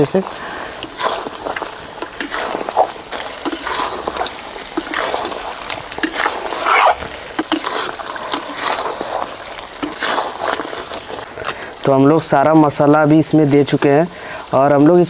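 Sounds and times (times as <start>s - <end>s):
spices sizzling in a pan: 0.0s - 14.9s
metal spatula scraping a pan: 0.2s - 11.3s.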